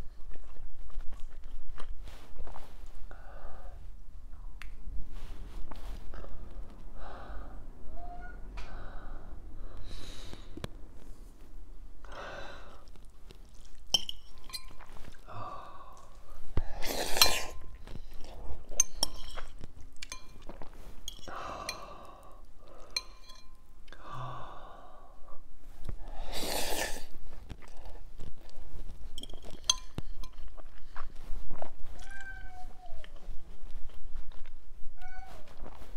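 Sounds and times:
man chewing noodles: 12.6 - 15.3, 26.2 - 31.9
metal fork clinking on glass bowl: 14.0 - 14.9, 18.8 - 20.5, 23.0 - 23.6, 29.2 - 30.4.

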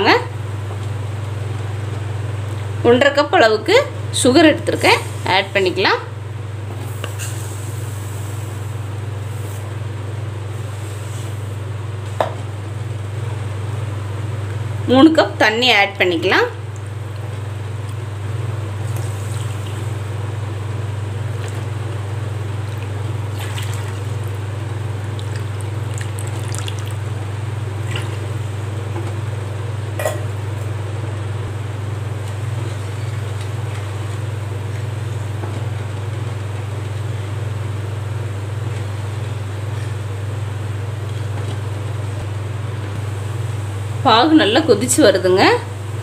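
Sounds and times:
steady low hum: 0.0 - 46.0
water poured into pan: 25.2 - 27.0.

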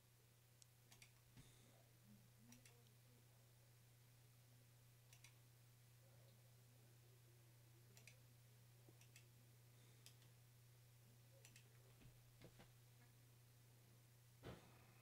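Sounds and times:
low steady hum: 0.0 - 15.0
faint computer mouse clicks: 5.1 - 5.4, 7.9 - 8.2, 9.0 - 9.3, 11.4 - 11.7.

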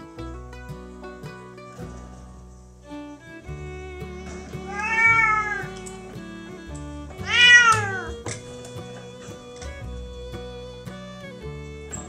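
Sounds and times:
music with guitar and fiddle: 0.0 - 12.0
cat meowing: 3.7 - 6.1, 7.1 - 10.8.

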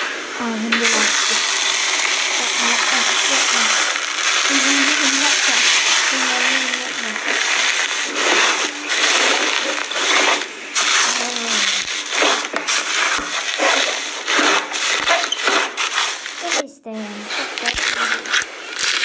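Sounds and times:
slime squishing: 0.6 - 19.0.

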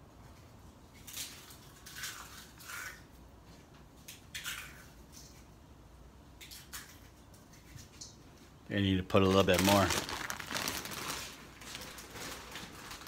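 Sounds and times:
foil snack bag crinkling: 9.0 - 13.0.

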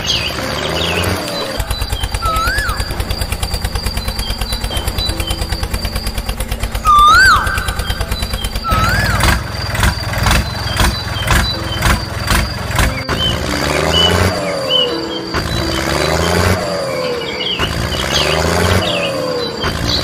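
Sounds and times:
bird whistles: 0.0 - 6.1, 6.8 - 12.1
tractor engine chugging: 0.0 - 20.0.

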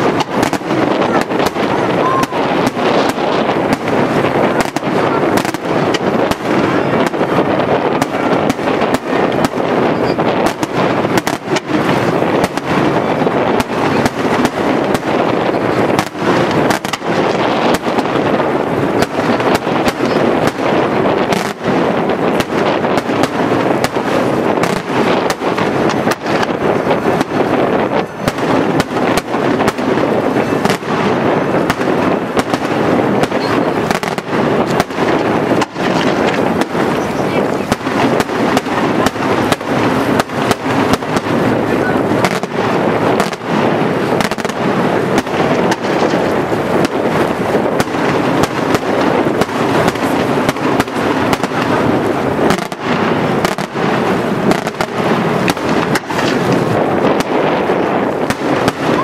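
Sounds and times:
fireworks shells bursting: 0.0 - 59.0.

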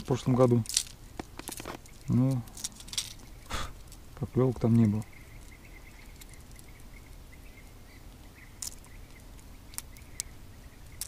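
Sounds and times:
faint high chirping: 3.1 - 11.0.

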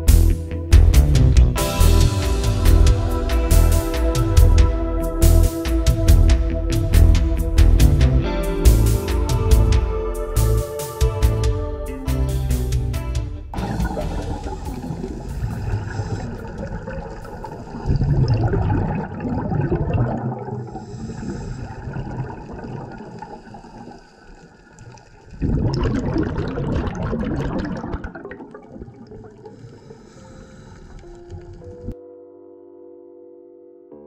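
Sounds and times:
air bubbling underwater: 13.6 - 32.0.

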